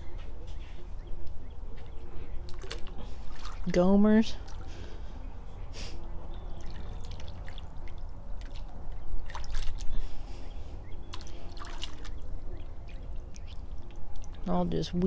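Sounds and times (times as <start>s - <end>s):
water splashing and trickling: 2.4s - 5.2s, 6.3s - 15.0s.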